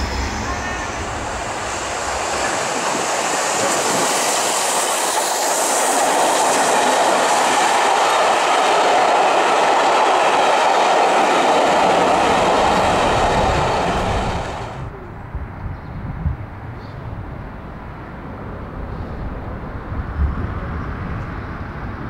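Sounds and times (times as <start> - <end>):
train wheels rushing on rails: 0.0 - 14.9.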